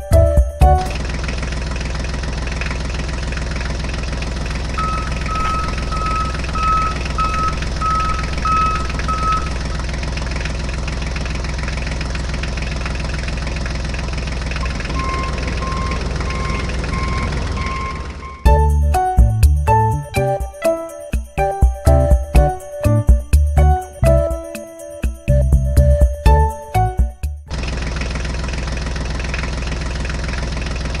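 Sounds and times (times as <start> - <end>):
truck engine idling: 0.1 - 20.0, 27.5 - 31.0
short reversing beeps: 4.3 - 9.8, 14.9 - 18.5.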